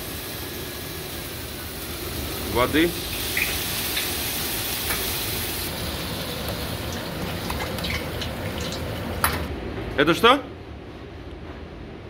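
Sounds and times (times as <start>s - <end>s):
water sizzling in hot wok: 0.0s - 9.3s
gas burner running: 0.0s - 9.5s.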